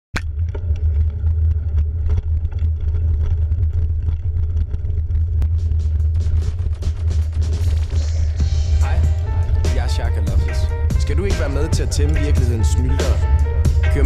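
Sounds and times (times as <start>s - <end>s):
small clicks and knocks from bike: 0.2s - 8.0s
mountain bike rattling: 0.3s - 8.4s
low wind rumble: 0.4s - 14.0s.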